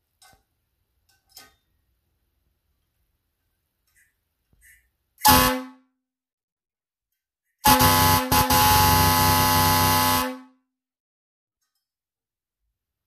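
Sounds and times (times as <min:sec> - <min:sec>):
air horn blasting: 0:05.2 - 0:05.9, 0:07.6 - 0:10.6.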